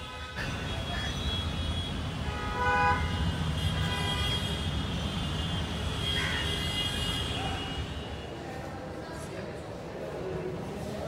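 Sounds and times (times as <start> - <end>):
vehicle horns honking: 0.0 - 8.2
traffic rumble: 0.0 - 11.0.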